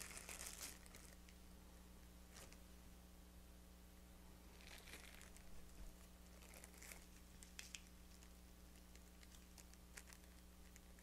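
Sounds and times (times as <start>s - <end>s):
plastic wrapping rustling: 0.0s - 1.3s, 2.3s - 2.6s, 4.5s - 11.0s.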